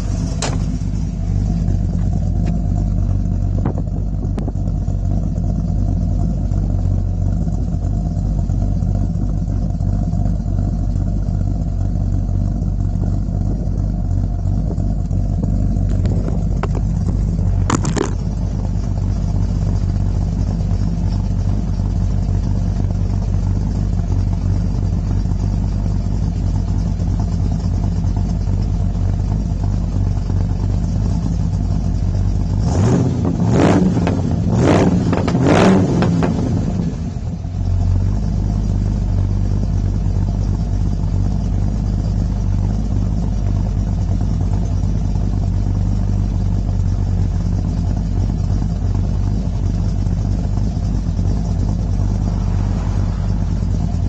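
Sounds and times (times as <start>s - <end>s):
car engine idling: 0.0s - 54.0s.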